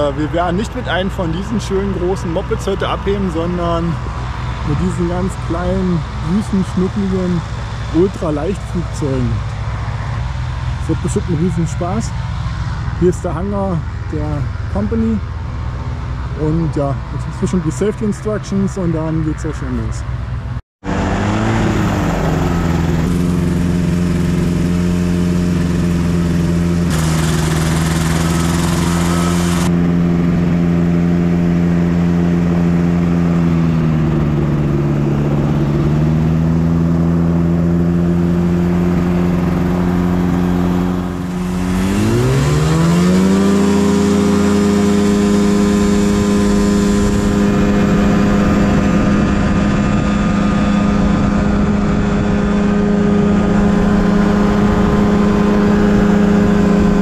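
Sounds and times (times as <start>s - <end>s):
ultralight engine and propeller: 0.0s - 57.0s.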